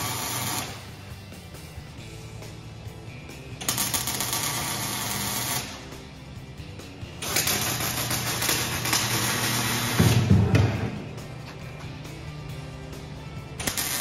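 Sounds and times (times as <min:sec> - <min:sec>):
welding arc hissing: 0:00.0 - 0:01.1, 0:03.7 - 0:05.9, 0:07.2 - 0:10.3, 0:13.7 - 0:14.0
background music: 0:00.0 - 0:14.0.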